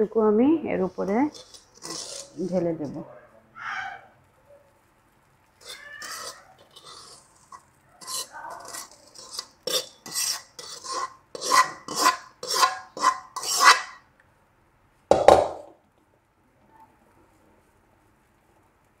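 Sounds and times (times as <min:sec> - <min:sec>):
metal utensil scraping metal pan: 0:00.5 - 0:03.0, 0:05.6 - 0:14.0.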